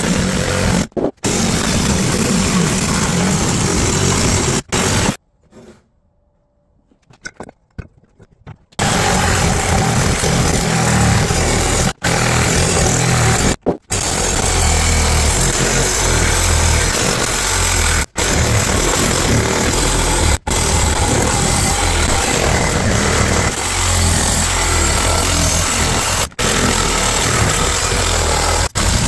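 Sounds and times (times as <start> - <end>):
reciprocating saw cutting metal: 0.0 - 5.2, 8.8 - 29.0.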